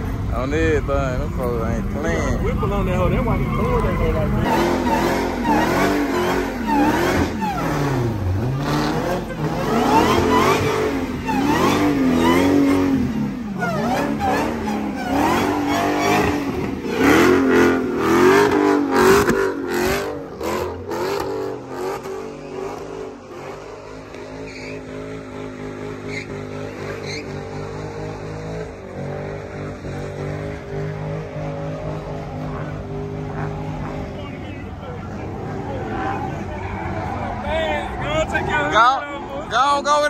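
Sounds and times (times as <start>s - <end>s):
car engine revving: 0.0s - 40.0s
spinning tyres squealing: 0.4s - 40.0s.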